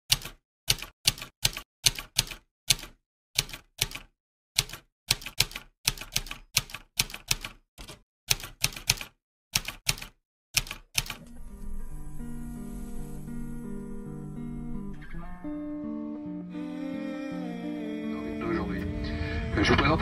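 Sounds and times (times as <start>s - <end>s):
keystroke clicks: 0.1s - 11.2s.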